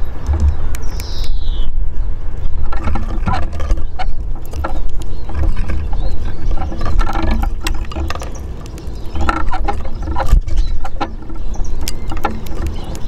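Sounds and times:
beaks tapping on wood: 0.0s - 1.4s, 2.6s - 13.0s
loud low rumble: 0.0s - 2.3s.

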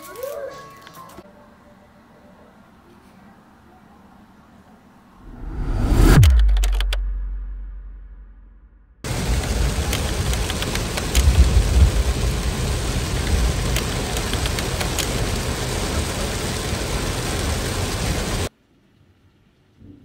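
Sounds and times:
low rumble: 5.2s - 18.5s
heavy rain pouring: 9.0s - 18.5s.

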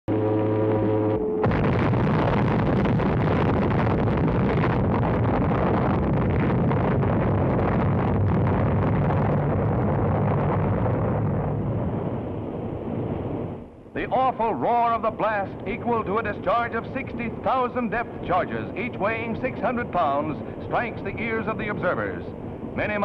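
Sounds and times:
atomic bomb blast roar: 0.1s - 13.6s.

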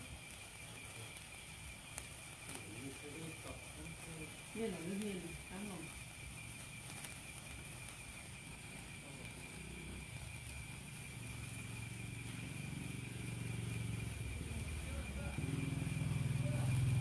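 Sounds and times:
steady high-pitched tone: 0.0s - 17.0s
vehicle engine running: 0.0s - 17.0s.

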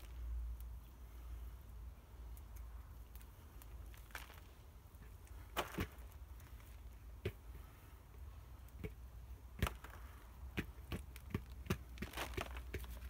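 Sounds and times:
soil and potatoes dropping on plastic: 3.7s - 7.6s, 8.7s - 13.0s.

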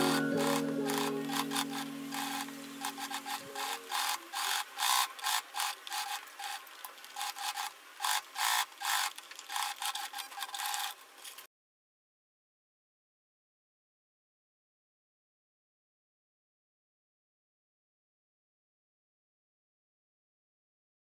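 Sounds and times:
sewing machine stitching: 0.0s - 11.0s.

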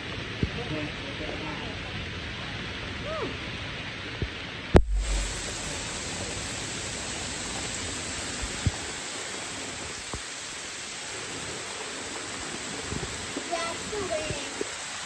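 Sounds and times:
steady rain hiss: 0.0s - 15.0s
sharp thump with low rumble: 4.8s - 6.2s.

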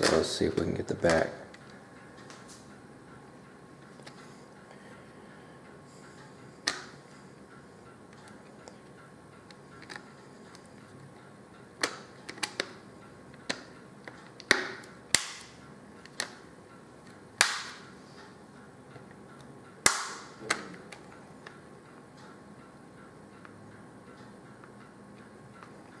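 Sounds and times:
plastic clips snapping into place: 14.4s - 16.4s, 17.4s - 17.8s, 19.8s - 21.0s.

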